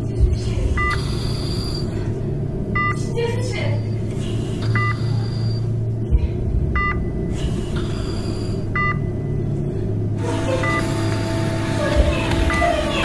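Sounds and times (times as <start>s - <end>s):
steady low hum: 0.0s - 13.0s
heart monitor two-tone beeps: 0.8s - 1.9s, 2.8s - 3.0s, 4.7s - 5.6s, 6.8s - 7.3s, 8.4s - 9.3s, 10.6s - 11.0s.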